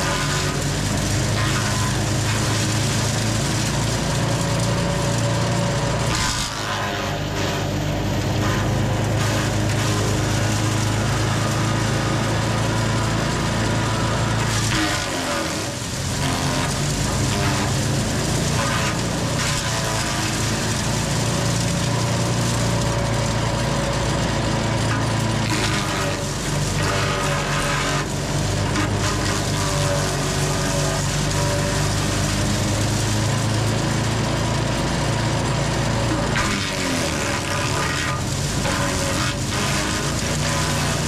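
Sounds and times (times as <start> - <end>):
chipper engine running: 0.0 - 41.0
branches crunching and cracking: 36.1 - 41.0.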